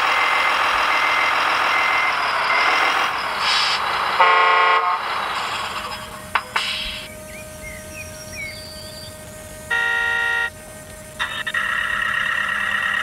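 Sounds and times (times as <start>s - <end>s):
steady mechanical running sound: 0.0s - 13.0s
horn blast: 4.2s - 5.1s, 9.7s - 10.6s.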